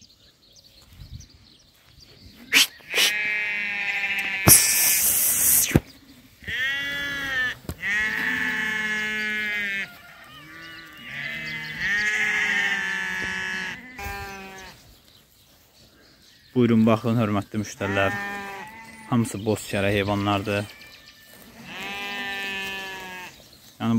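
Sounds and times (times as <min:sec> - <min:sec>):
lambs bleating: 0:02.5 - 0:05.6, 0:06.4 - 0:14.8, 0:17.7 - 0:19.3, 0:20.0 - 0:23.4
short burst of rushing noise: 0:04.5 - 0:05.8.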